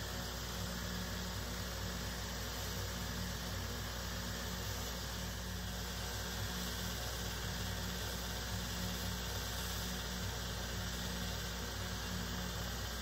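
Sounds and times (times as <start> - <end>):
sanding hiss: 4.2 - 13.0.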